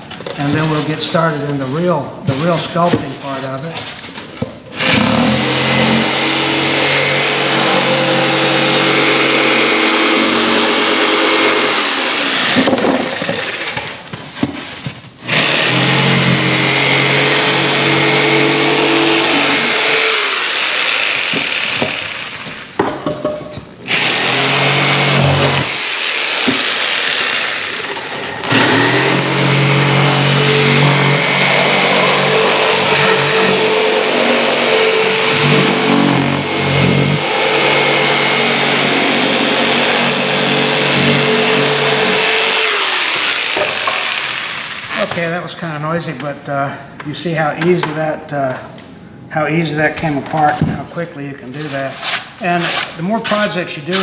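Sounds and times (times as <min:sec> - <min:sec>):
electric jigsaw cutting foam: 0:04.8 - 0:14.1, 0:15.2 - 0:22.8, 0:23.8 - 0:45.3.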